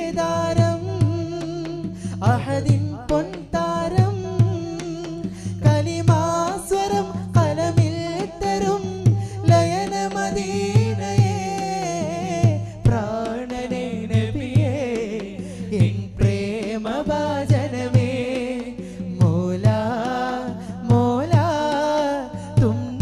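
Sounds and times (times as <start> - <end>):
low drum beat: 0.0 - 23.0
men singing devotional song: 0.0 - 23.0.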